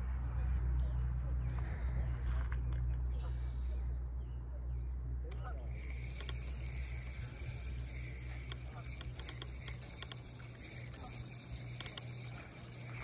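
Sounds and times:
steady low rumble: 0.0 - 13.0
light clicks and ticks: 5.3 - 13.0.

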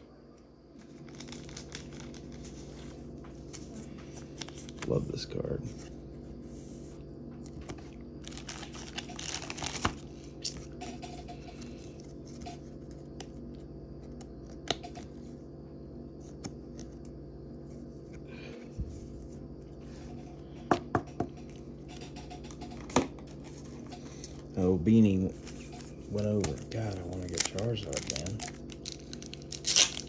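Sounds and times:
steady low hum: 0.0 - 30.0
foil rustling and crinkling: 0.8 - 5.0, 7.5 - 10.5, 25.0 - 30.0.

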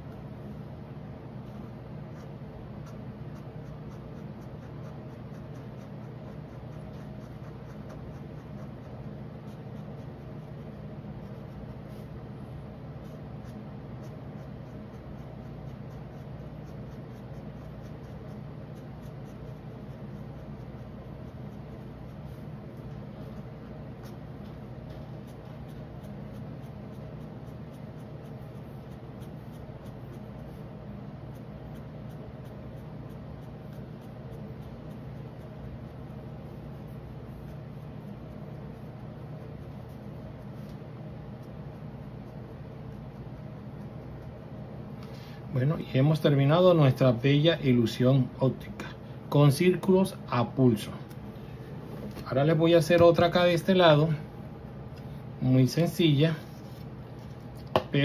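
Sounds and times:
steady low hum: 0.0 - 58.0
pen scratching on paper: 1.5 - 12.2, 13.0 - 30.7, 31.3 - 40.8.

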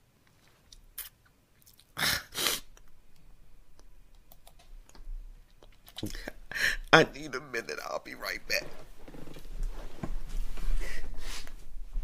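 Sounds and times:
person sniffing while crying: 2.0 - 2.7.

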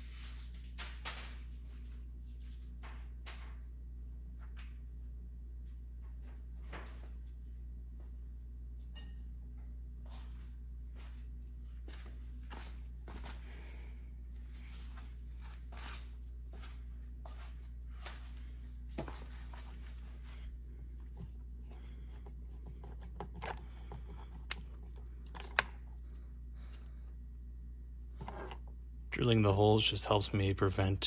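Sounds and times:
steady low hum: 0.0 - 31.0
screwdriver clicks and scrapes: 22.2 - 26.9.

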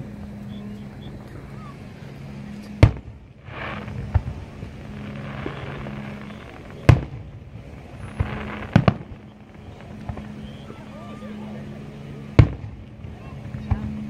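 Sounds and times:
firework shells bursting: 2.8 - 10.9.

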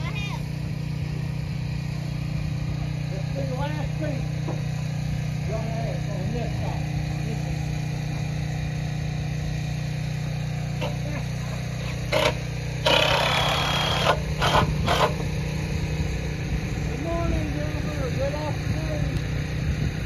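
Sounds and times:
engine droning: 0.0 - 20.0
building work clatters: 10.8 - 15.2.

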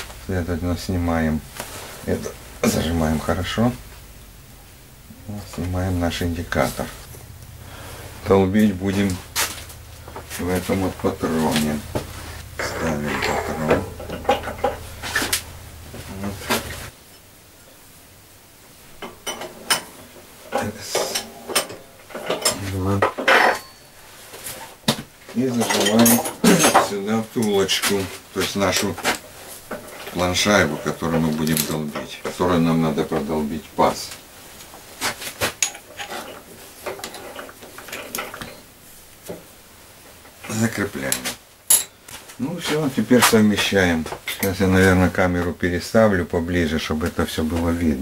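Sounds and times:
metal knocks and clinks: 12.5 - 15.4, 19.0 - 24.0, 41.7 - 42.0.

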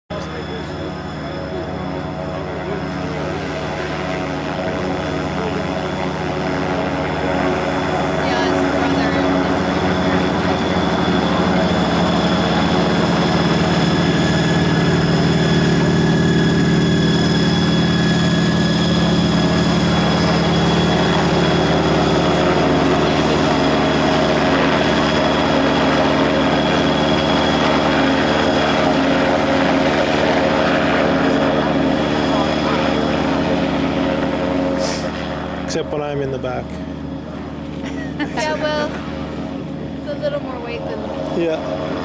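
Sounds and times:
engine and propeller running: 0.1 - 42.0.

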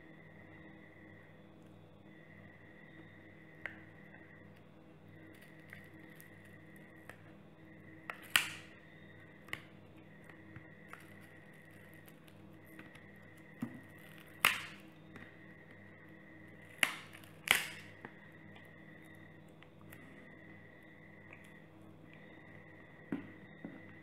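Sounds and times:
battery adhesive snapping: 16.8 - 17.9.

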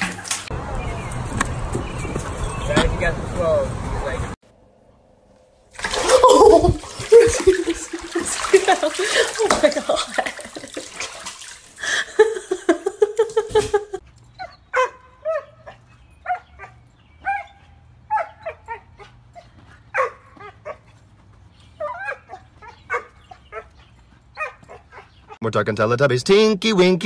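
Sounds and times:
water running into bathtub: 5.8 - 12.1
small dog barking: 14.7 - 19.1, 19.9 - 20.8, 21.8 - 23.7, 24.4 - 25.1.

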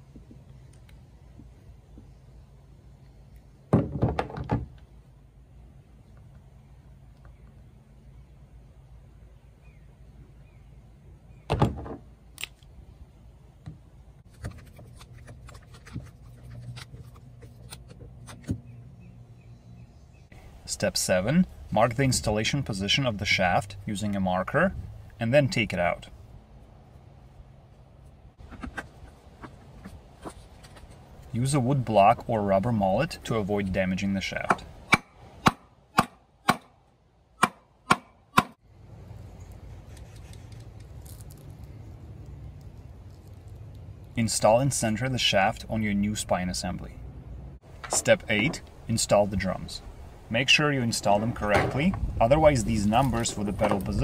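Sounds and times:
hammer striking wood block: 34.5 - 36.7, 37.4 - 38.6.

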